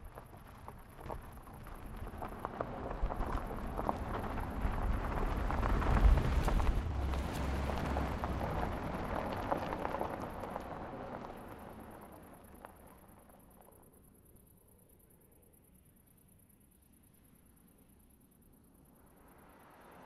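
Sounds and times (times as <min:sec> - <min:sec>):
tyres crunching over gravel: 0:00.0 - 0:13.3
low car engine and road rumble: 0:00.0 - 0:14.4.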